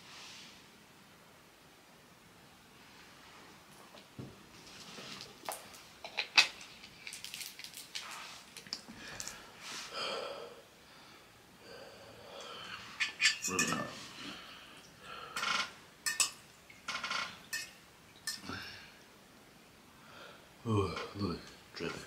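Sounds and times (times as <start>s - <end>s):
fork clinking in a bowl: 16.1s - 16.4s, 17.5s - 18.4s.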